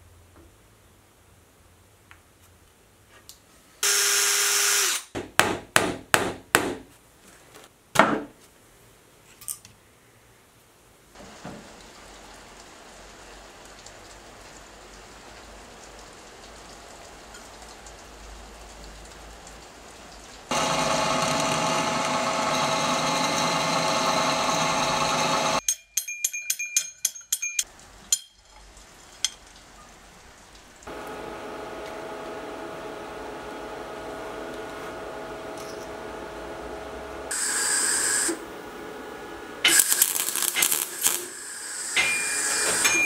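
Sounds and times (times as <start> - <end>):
drill press drilling metal: 3.8 - 5.0, 20.5 - 25.6, 39.6 - 43.0.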